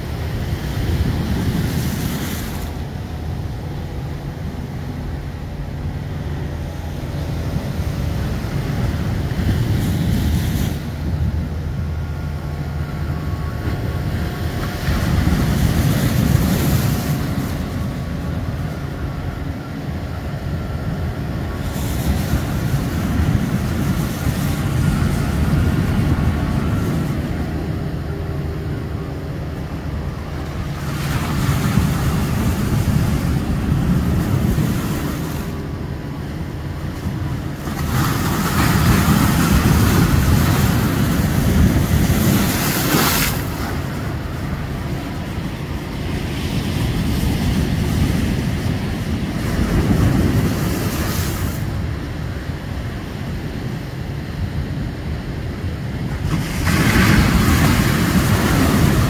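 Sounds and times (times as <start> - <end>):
sea waves breaking on rocks: 13.6 - 18.6, 30.4 - 35.6, 36.5 - 59.0.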